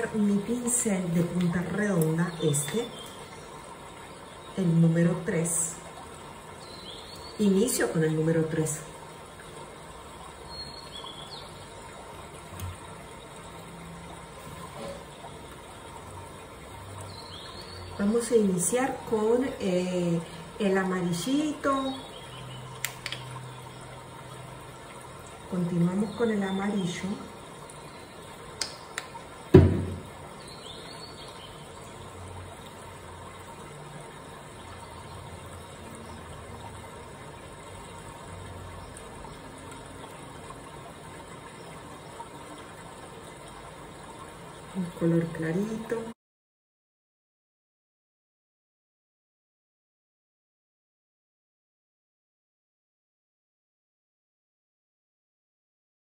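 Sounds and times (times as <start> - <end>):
background hum and hiss: 0.0 - 46.1
soft knock: 29.5 - 30.0.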